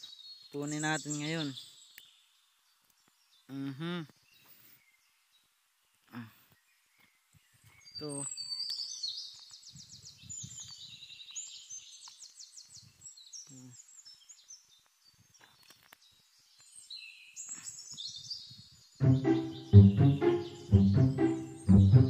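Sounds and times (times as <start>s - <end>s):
songbirds chirping trills: 0.0s - 22.0s
background music: 19.0s - 22.0s.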